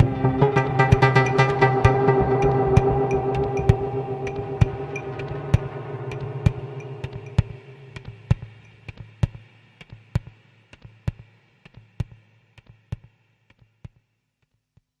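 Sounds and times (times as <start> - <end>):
low sustained drone: 0.0 - 8.9
higher steady tones: 0.0 - 9.1.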